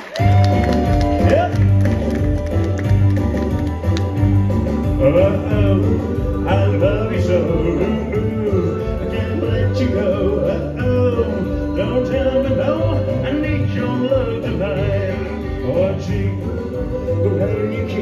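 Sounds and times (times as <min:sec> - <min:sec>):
live country band: 0:00.0 - 0:18.0
man singing lead: 0:04.8 - 0:18.0
women singing backing vocals: 0:06.3 - 0:18.0.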